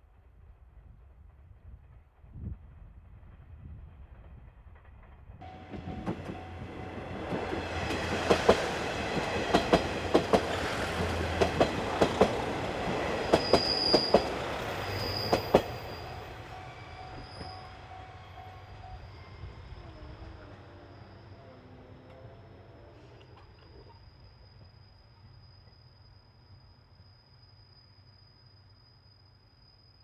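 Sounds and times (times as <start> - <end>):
train wheels clicking over rail joints: 4.8 - 16.5
high-pitched wheel squeals: 5.4 - 30.0.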